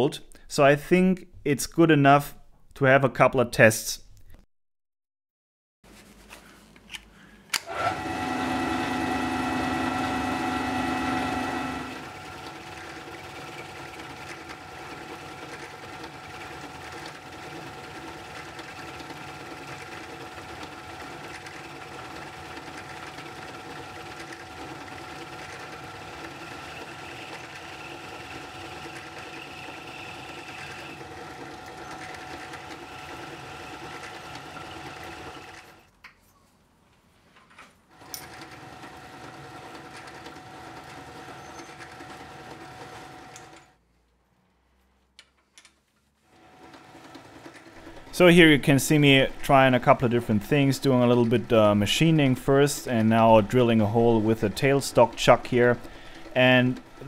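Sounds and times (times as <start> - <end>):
lathe whirring and whining: 7.6 - 35.8, 38.0 - 43.7, 46.4 - 57.0.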